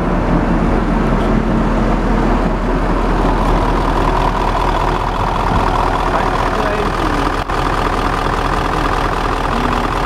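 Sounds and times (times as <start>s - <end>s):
diesel engine idling: 0.0s - 10.0s
steady whine: 0.0s - 10.0s.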